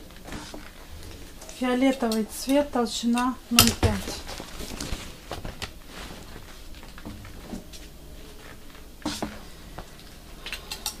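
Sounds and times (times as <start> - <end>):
leather hides rustling: 3.9 - 9.4.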